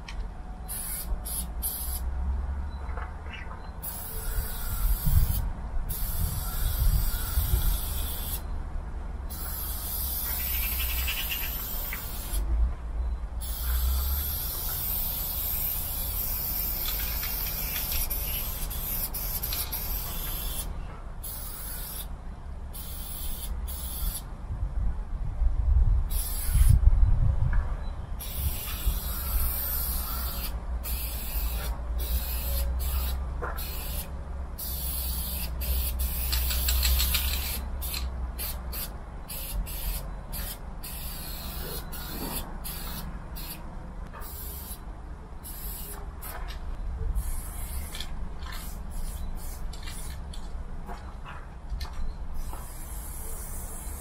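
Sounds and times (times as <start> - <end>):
spray paint can hissing: 0.7 - 2.0, 3.8 - 8.4, 9.3 - 12.4, 13.4 - 22.1, 22.8 - 24.3, 26.1 - 26.7, 28.2 - 43.6, 44.2 - 44.8, 45.4 - 46.4, 47.2 - 50.2, 52.4 - 54.0.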